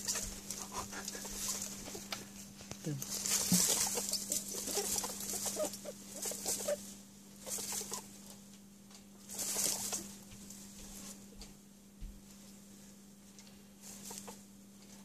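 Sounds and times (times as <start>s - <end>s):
baby rabbits squeaking: 0.0s - 8.4s, 9.2s - 11.0s, 13.8s - 14.5s
faint steady hum: 0.0s - 15.0s.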